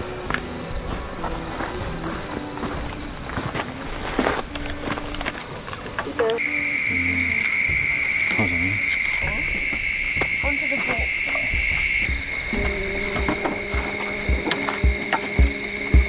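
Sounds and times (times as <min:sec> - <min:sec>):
high insect trill: 0:00.0 - 0:16.0
lower insect trill: 0:00.0 - 0:16.0
short low sounds: 0:06.9 - 0:07.6.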